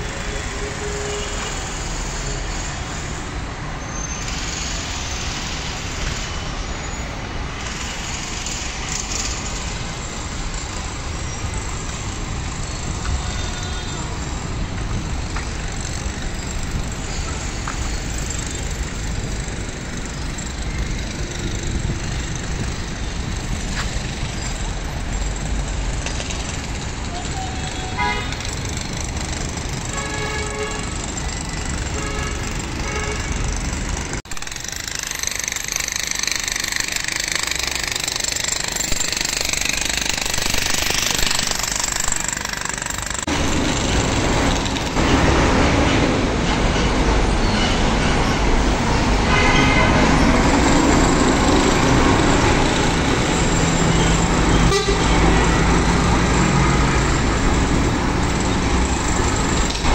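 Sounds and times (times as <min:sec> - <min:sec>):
street traffic noise: 0:00.0 - 0:59.9
car horn toots: 0:27.7 - 0:28.4, 0:29.9 - 0:30.8, 0:31.9 - 0:33.4, 0:49.3 - 0:50.0, 0:54.6 - 0:55.2.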